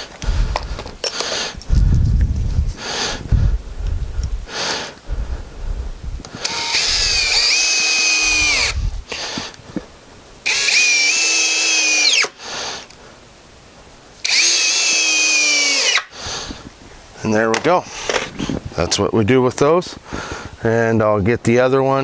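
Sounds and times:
knocks and handling noise: 0.1s - 2.8s
cordless drill driving screws: 6.3s - 8.8s, 10.5s - 12.4s, 14.2s - 16.1s.

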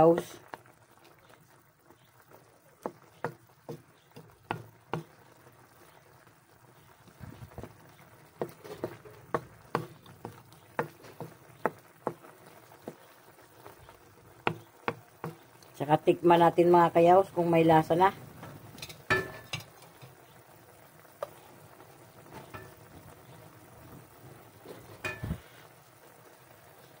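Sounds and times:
wet stirring: 0.4s - 6.0s, 6.8s - 15.9s
spatula knocking against wok: 2.8s - 5.2s, 8.4s - 13.0s, 14.4s - 15.5s.

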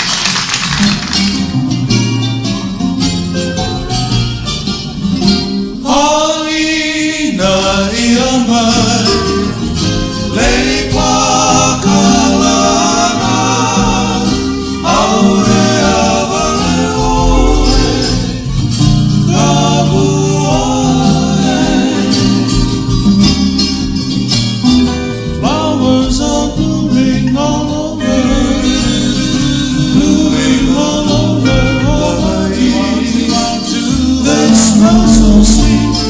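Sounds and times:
ukulele strumming: 0.0s - 6.0s, 7.4s - 36.0s
strummed acoustic guitar: 0.0s - 36.0s
male group singing in harmony: 5.8s - 23.3s, 25.4s - 36.0s.

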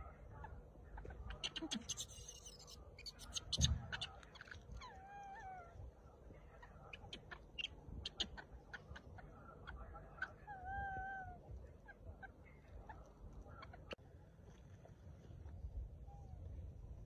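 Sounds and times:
monkey coo call: 1.3s - 5.8s, 6.6s - 12.4s.

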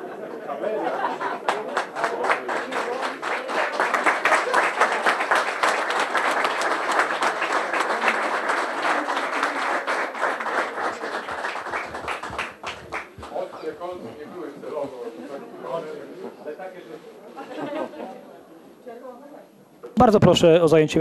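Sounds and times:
murmur of voices: 0.0s - 5.7s, 12.2s - 19.8s
crowd applauding: 1.0s - 14.3s.

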